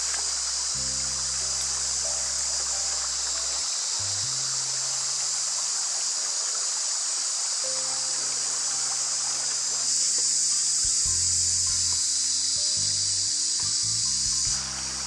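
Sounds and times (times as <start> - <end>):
music of long low notes: 0.0 - 6.4, 7.5 - 15.0
high-pitched forest hiss: 0.0 - 15.0.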